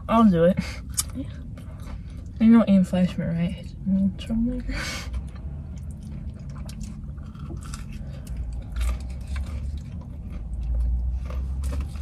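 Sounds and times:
low steady hum: 0.0s - 12.0s
chewing and crunching food: 0.8s - 2.9s, 5.0s - 12.0s.

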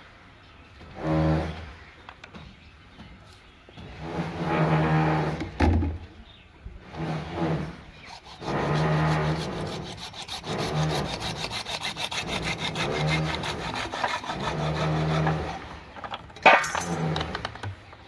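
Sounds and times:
hacksaw cutting plastic pipe: 7.4s - 15.8s.

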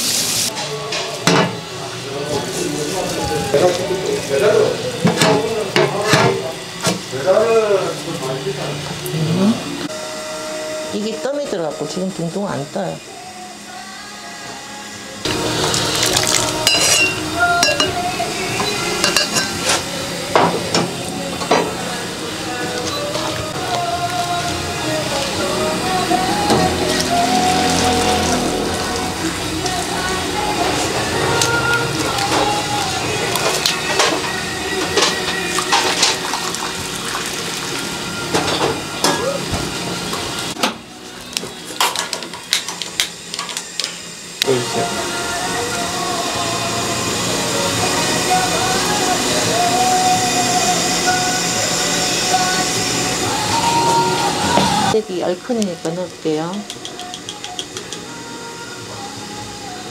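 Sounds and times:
broth boiling in a pot: 15.3s - 40.6s
metal ladle clinking on pots: 16.6s - 18.0s, 18.6s - 19.6s
broth splashing and pouring: 35.5s - 38.0s.

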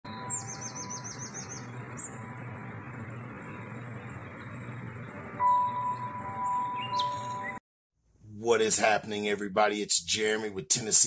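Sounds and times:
songbird chirping: 0.1s - 7.6s.

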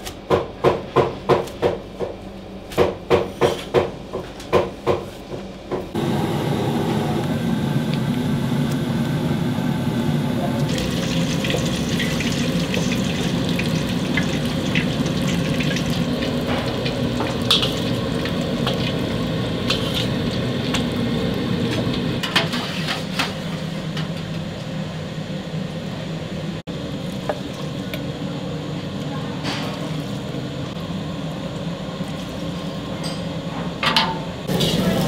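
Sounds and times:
kitchen roar: 0.0s - 35.0s
hot oil bubbling and sizzling: 10.6s - 23.6s, 34.5s - 35.0s.

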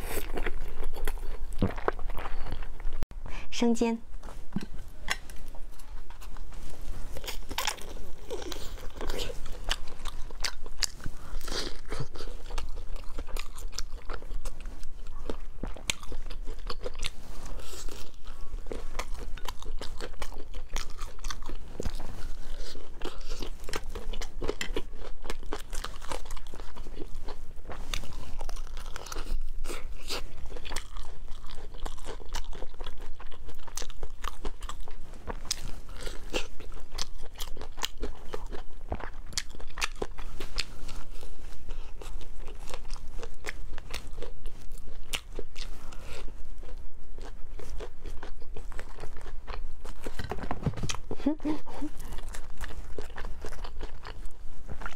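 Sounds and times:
crunchy chewing: 0.0s - 3.0s, 4.6s - 54.9s.

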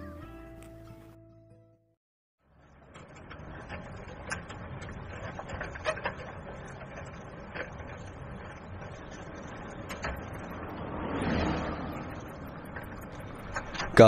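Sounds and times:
low mechanical rumble: 2.4s - 14.0s
clicks and rattles: 2.8s - 10.8s, 11.9s - 14.0s.

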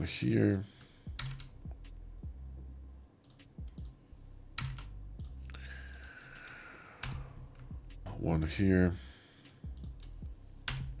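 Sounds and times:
low steady hum: 0.0s - 11.0s
keyboard and mouse clicks: 1.2s - 1.6s, 3.2s - 4.0s, 4.6s - 7.7s, 9.4s - 11.0s.

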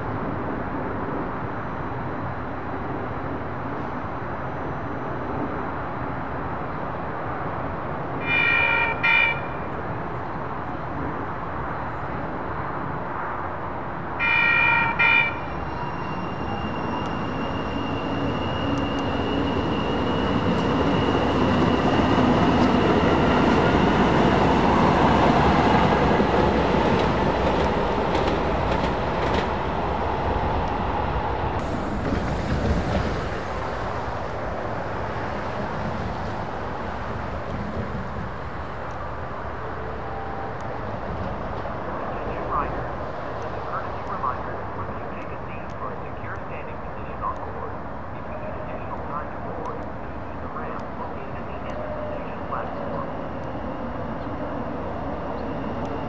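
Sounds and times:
train horn signals: 8.2s - 9.6s, 14.2s - 18.0s
train rolling noise: 13.7s - 56.0s.

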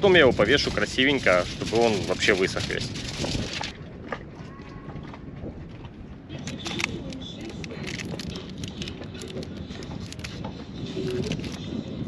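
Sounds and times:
aluminium foil crinkling: 0.5s - 3.7s, 6.4s - 10.4s, 11.0s - 11.6s.

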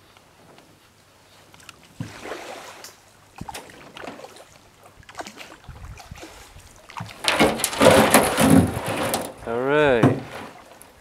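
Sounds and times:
paddle in water: 0.7s - 11.0s
canoe scraping onto leafy bank: 6.2s - 11.0s
knocks on canoe hull: 9.9s - 10.6s.

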